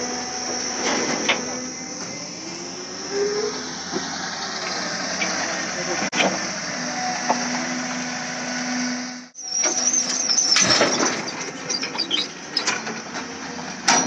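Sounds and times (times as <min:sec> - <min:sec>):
excavator engine running: 0:00.0 - 0:09.2.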